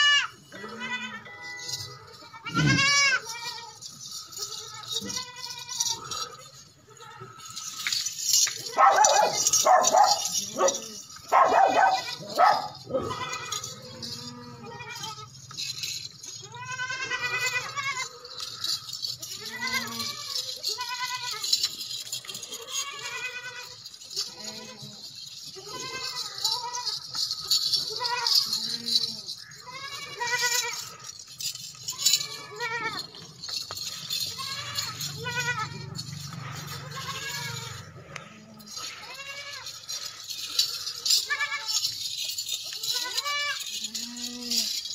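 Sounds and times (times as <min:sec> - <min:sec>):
goats bleating: 0:00.0 - 0:44.9.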